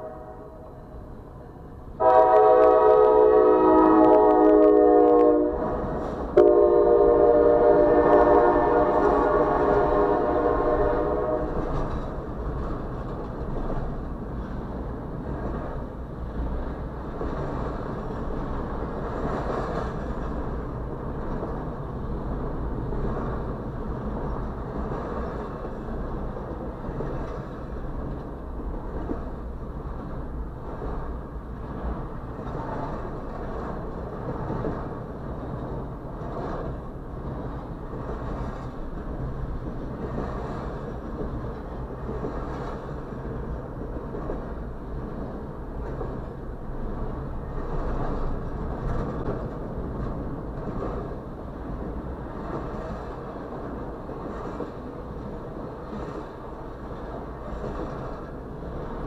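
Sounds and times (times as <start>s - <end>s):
freight train wheels rumbling: 0.0s - 59.0s.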